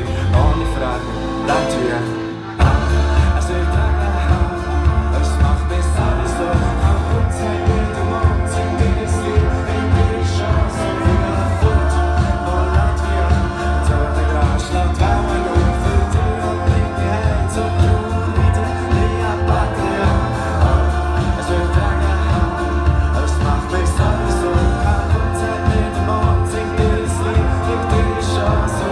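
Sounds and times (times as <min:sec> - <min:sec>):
bass line: 0:00.0 - 0:28.9
live band music: 0:00.0 - 0:28.9
person singing: 0:00.0 - 0:28.9
drum hits: 0:02.6 - 0:28.9.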